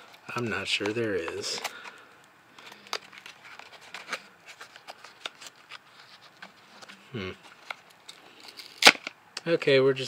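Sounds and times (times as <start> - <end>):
person humming: 7.1 - 7.4.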